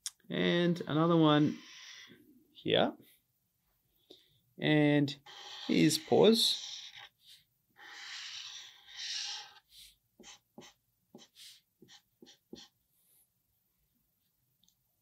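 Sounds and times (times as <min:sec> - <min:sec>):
marker scratching on paper: 0:01.4 - 0:02.2, 0:05.2 - 0:13.2.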